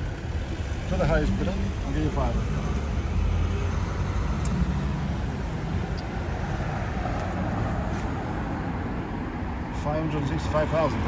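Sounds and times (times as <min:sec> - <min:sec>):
vehicle engine rumbling: 0:00.0 - 0:10.6.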